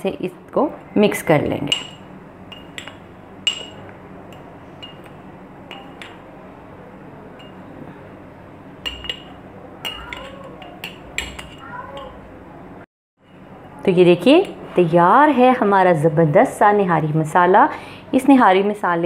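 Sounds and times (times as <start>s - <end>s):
metal spoon clinking on glass jar: 8.8s - 12.1s.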